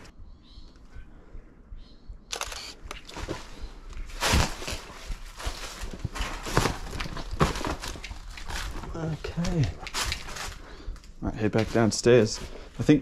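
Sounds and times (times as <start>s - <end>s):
camera handling noise: 2.3s - 3.3s.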